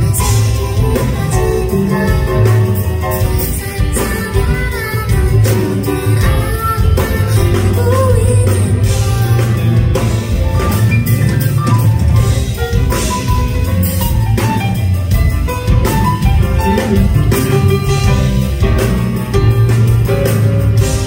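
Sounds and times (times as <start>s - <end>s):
woman singing: 0.0s - 10.8s
bass line: 0.0s - 21.0s
drum kit: 0.0s - 21.0s
grand piano: 0.0s - 21.0s.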